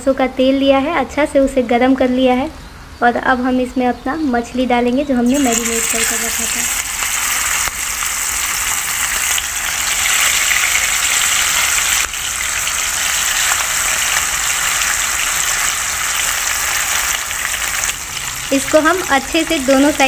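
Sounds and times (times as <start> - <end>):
fish frying in hot oil: 5.3 - 20.0.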